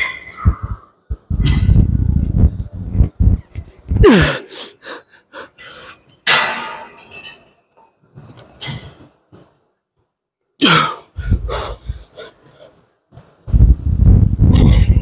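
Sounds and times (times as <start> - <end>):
man breathing hard and grunting: 3.9 - 6.0, 10.8 - 12.7.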